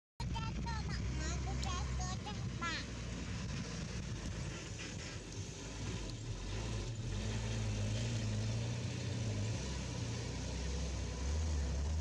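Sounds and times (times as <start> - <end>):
engine idling: 0.2 - 8.1.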